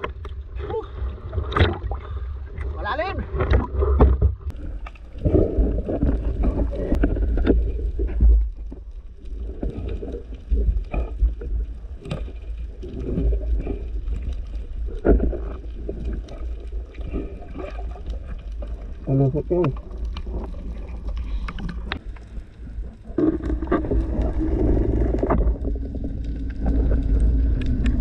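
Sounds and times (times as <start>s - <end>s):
underwater rumble of moving water: 0.0s - 28.0s.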